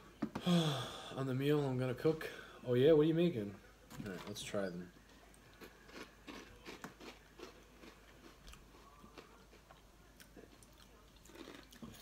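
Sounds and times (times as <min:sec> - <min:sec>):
person chewing crunchy snacks: 0:05.5 - 0:12.0.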